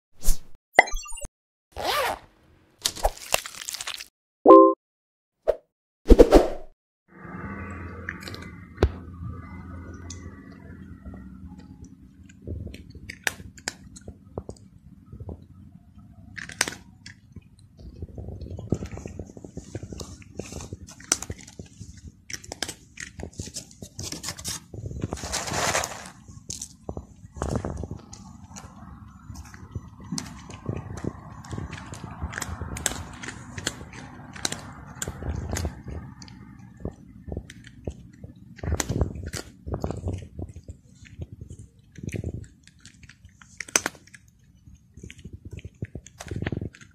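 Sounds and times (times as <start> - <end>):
cat crunching dry kibble: 3.2 - 4.1, 12.1 - 14.7, 16.3 - 46.9.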